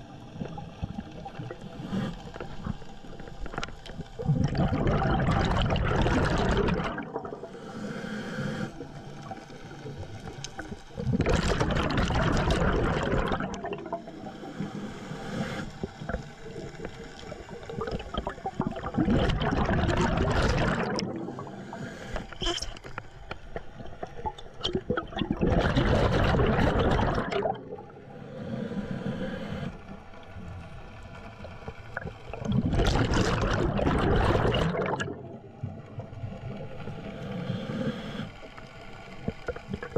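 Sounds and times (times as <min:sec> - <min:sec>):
bubbles gurgling underwater: 0:00.0 - 0:07.5, 0:08.9 - 0:14.2, 0:15.9 - 0:21.6, 0:23.6 - 0:28.0, 0:31.6 - 0:37.0, 0:39.2 - 0:39.9
breathing through a regulator: 0:01.5 - 0:03.0, 0:07.4 - 0:11.3, 0:12.8 - 0:23.0, 0:25.5 - 0:30.0, 0:37.0 - 0:39.6.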